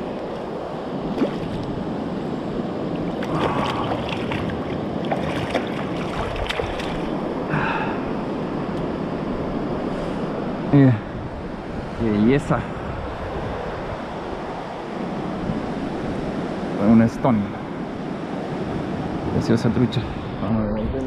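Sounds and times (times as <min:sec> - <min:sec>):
stream water flowing: 0:00.0 - 0:07.5
small water splashes: 0:01.1 - 0:01.8, 0:03.0 - 0:07.2.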